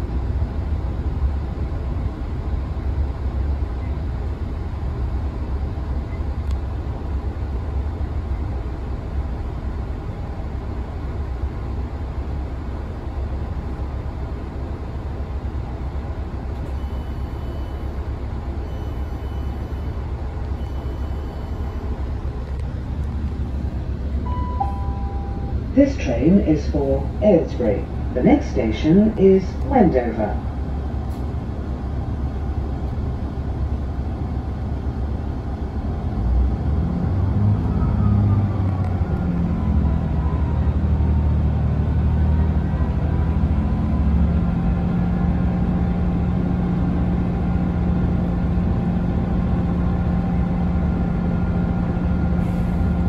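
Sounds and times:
train engine rumble: 0:00.0 - 0:53.0
faint high beeps: 0:16.7 - 0:17.9, 0:18.6 - 0:20.0, 0:20.6 - 0:21.9, 0:24.2 - 0:25.6.

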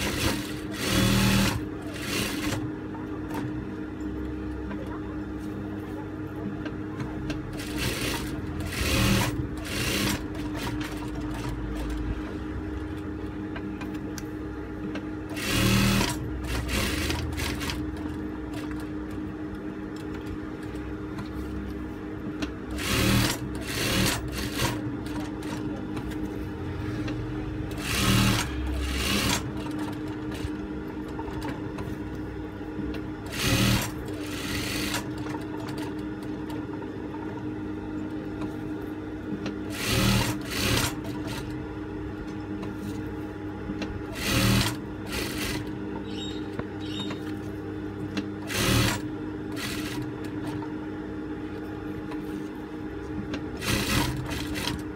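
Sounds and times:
sewing machine stitching: 0:00.0 - 0:02.7, 0:07.5 - 0:12.1, 0:15.3 - 0:18.9, 0:22.7 - 0:25.7, 0:27.7 - 0:30.6, 0:33.2 - 0:36.0, 0:39.7 - 0:41.5, 0:44.1 - 0:45.7, 0:48.4 - 0:50.5, 0:53.6 - 0:54.9
sewing machine motor hum: 0:00.0 - 0:03.8, 0:07.2 - 0:14.0, 0:14.8 - 0:38.8, 0:39.4 - 0:41.8, 0:44.0 - 0:54.9.

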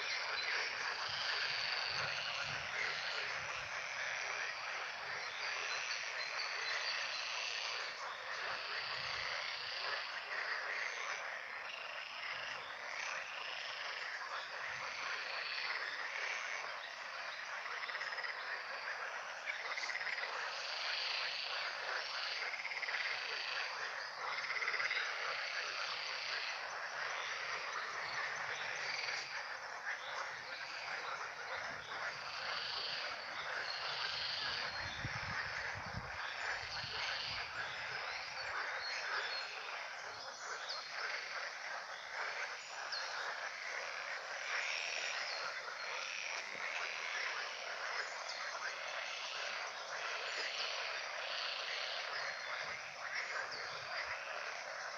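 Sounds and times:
chorus of frogs calling: 0:00.0 - 0:54.9.

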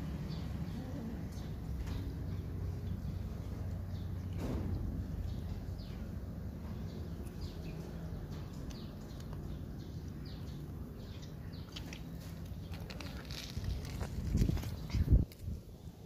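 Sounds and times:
cat crunching on fish: 0:11.7 - 0:15.4.

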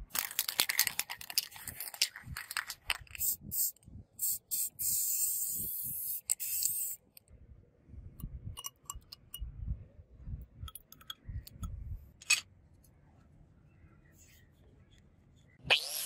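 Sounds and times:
aerosol spray can hissing: 0:03.2 - 0:07.0.

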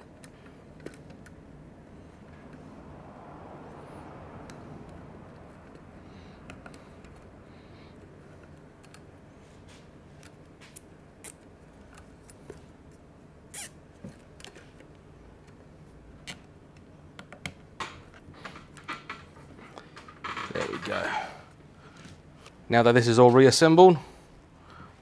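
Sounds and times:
small handling noises: 0:04.4 - 0:23.6.

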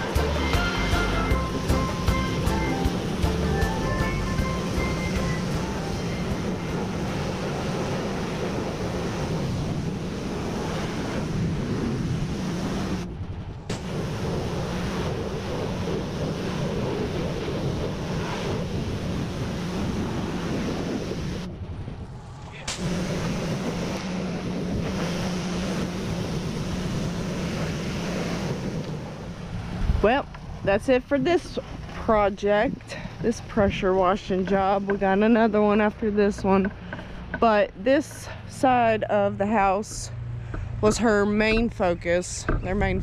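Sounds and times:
pressure washer engine running: 0:00.0 - 0:11.5, 0:22.6 - 0:29.6.

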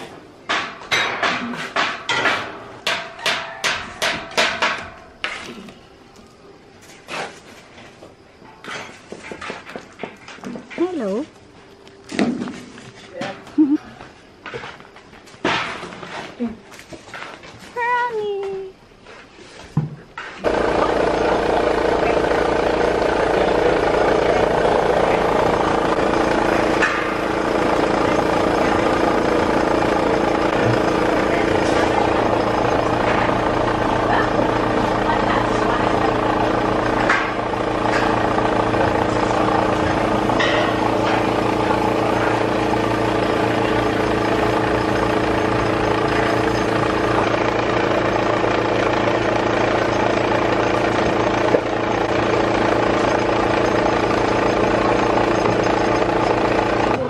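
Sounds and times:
sharp hammer-like knocks: 0:00.5 - 0:05.0
engine idling: 0:20.4 - 0:57.0.

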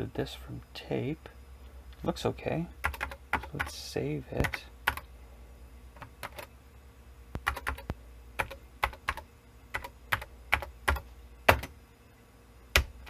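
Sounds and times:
computer keyboard keystrokes: 0:02.8 - 0:03.7, 0:04.4 - 0:05.0, 0:06.0 - 0:06.5, 0:07.4 - 0:11.7.

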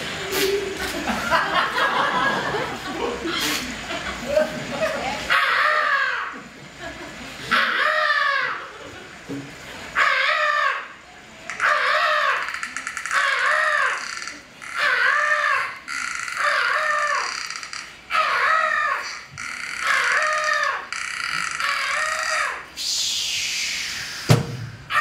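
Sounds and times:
high-pitched wordless vocal cry: 0:05.3 - 0:06.4, 0:07.5 - 0:08.8, 0:10.0 - 0:23.2.

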